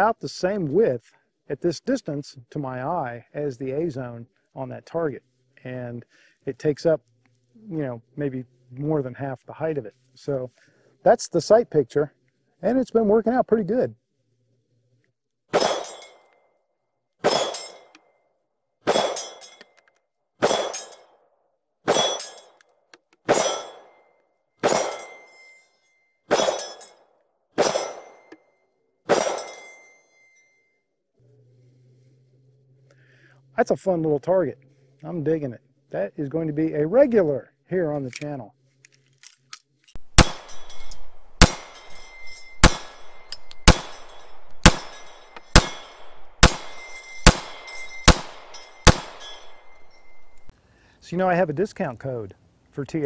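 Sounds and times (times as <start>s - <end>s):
bullets clanging on steel target: 15.5s - 16.4s, 17.2s - 18.0s, 18.9s - 19.8s, 20.4s - 21.1s, 21.9s - 22.6s, 23.2s - 24.0s, 24.6s - 25.6s, 26.3s - 27.0s, 27.6s - 28.4s, 29.1s - 30.5s, 39.9s - 50.5s
pistol shots: 18.9s - 19.2s, 20.4s - 20.8s, 23.3s - 23.8s, 24.6s - 25.1s, 40.0s - 50.5s.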